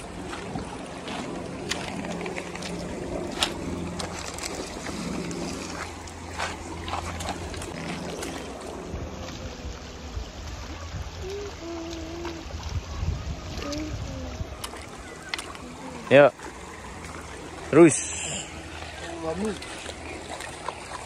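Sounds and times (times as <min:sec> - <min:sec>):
wind buffeting microphone: 0:00.0 - 0:17.7
creek water over stones: 0:00.0 - 0:21.0.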